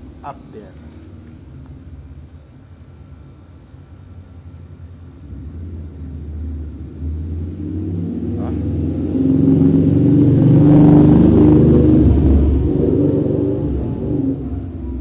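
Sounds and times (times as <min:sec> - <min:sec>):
vehicle engine approaching: 0:03.9 - 0:15.0.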